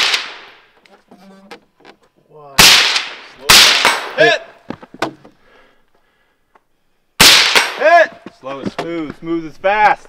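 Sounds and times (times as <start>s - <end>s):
rifle shots: 0.0s - 0.6s, 2.6s - 4.4s, 7.2s - 7.9s.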